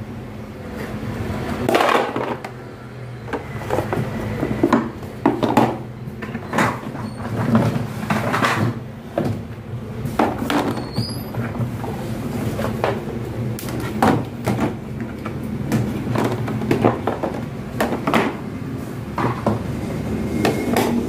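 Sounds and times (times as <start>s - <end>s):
plastic panels clattering on tiles: 1.6s - 2.6s, 3.6s - 9.4s.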